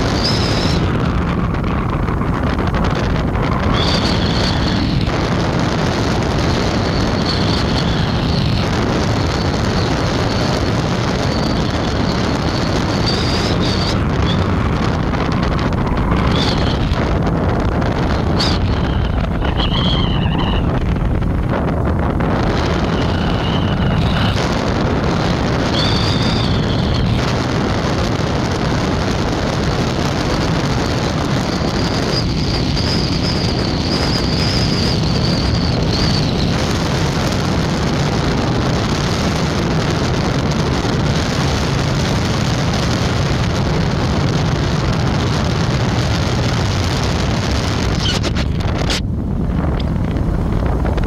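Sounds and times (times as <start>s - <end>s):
thin high whine: 0.0s - 39.6s
road noise: 0.0s - 51.0s
wind buffeting: 0.0s - 51.0s.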